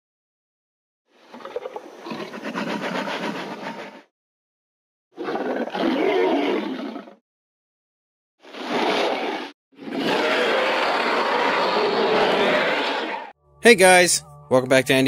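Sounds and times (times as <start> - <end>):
rasping dinosaur roars: 8.5 - 13.3.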